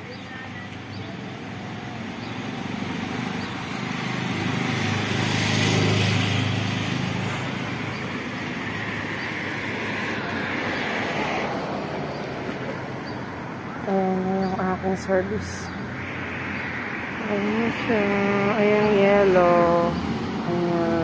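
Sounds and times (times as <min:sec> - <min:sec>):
cars passing: 0:00.0 - 0:21.0.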